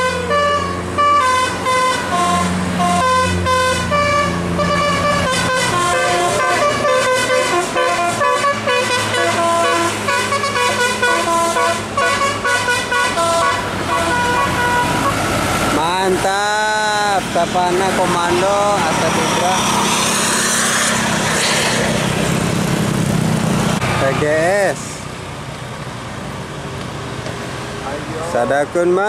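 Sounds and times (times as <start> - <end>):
multi-tone musical bus horn: 0.0 - 15.3
bus engine running: 0.0 - 29.0.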